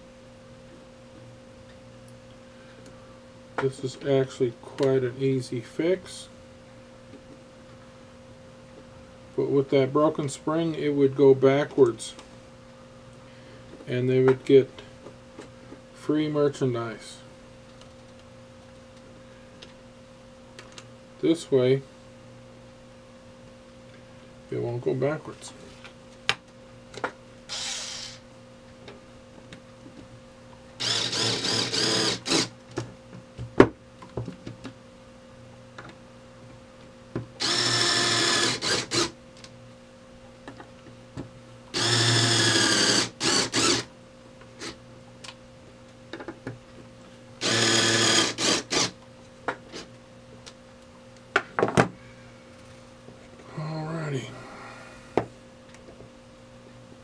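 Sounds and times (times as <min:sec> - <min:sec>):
electric screwdriver whining: 0:27.5 - 0:28.2, 0:30.8 - 0:32.5, 0:37.4 - 0:39.1, 0:41.8 - 0:43.9, 0:47.4 - 0:49.0.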